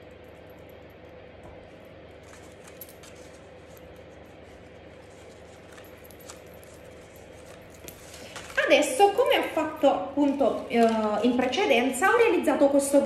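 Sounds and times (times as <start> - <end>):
faint steady hum: 0.0 - 13.0
paper pieces handled: 2.2 - 9.5.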